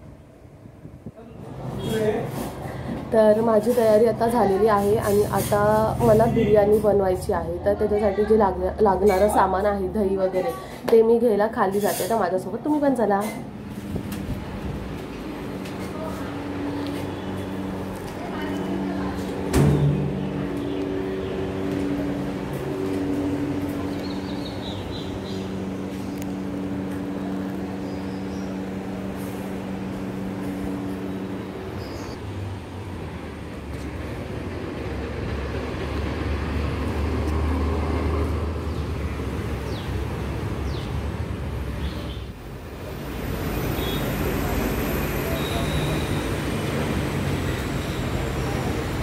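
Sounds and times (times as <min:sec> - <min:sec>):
low street rumble: 0:00.0 - 0:49.0
steady machine hum: 0:13.4 - 0:31.8
sharp knock: 0:19.5 - 0:20.7.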